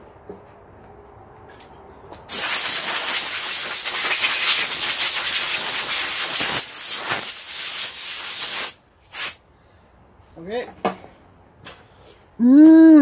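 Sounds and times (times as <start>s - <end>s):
air blow gun hissing: 2.3s - 9.4s.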